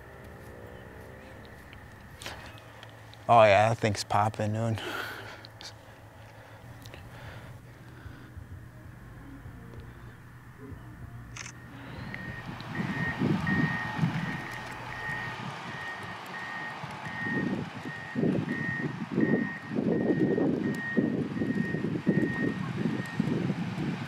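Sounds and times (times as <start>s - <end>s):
low rumble: 5.9s - 15.8s
reversing alarm beeping: 10.6s - 23.4s.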